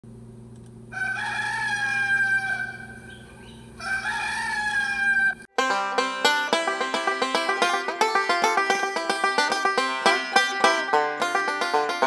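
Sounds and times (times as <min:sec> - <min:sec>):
rooster crowing: 0:00.9 - 0:05.5
banjo music: 0:05.5 - 0:12.0.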